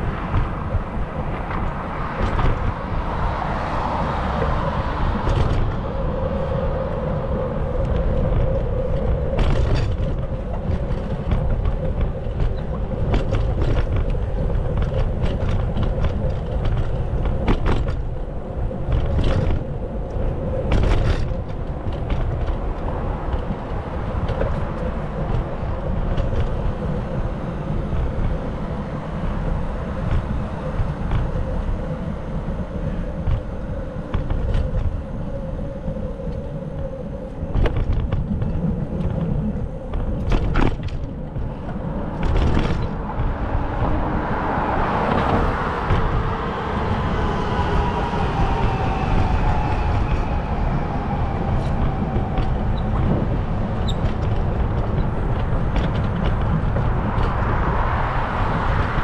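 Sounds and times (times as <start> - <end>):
vehicle passing by: 0.0 - 7.4, 41.8 - 59.0
traffic rumble: 0.0 - 59.0.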